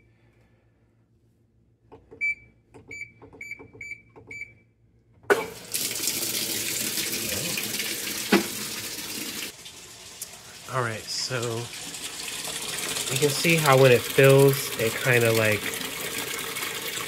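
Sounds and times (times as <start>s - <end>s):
water rushing into tub: 5.3s - 17.0s.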